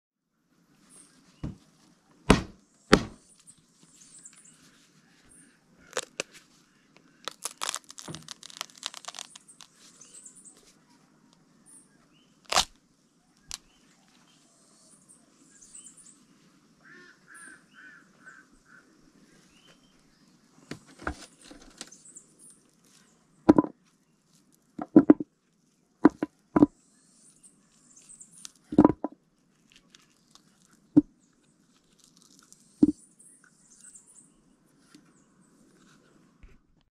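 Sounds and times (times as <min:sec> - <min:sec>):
pod husk cracking and tearing: 0:05.8 - 0:06.4, 0:07.0 - 0:10.1, 0:12.4 - 0:12.8, 0:28.3 - 0:32.8
knocks and rustling of beans: 0:07.3 - 0:09.5, 0:20.7 - 0:22.0, 0:23.5 - 0:23.8, 0:24.8 - 0:25.3, 0:26.0 - 0:26.7, 0:28.5 - 0:31.1.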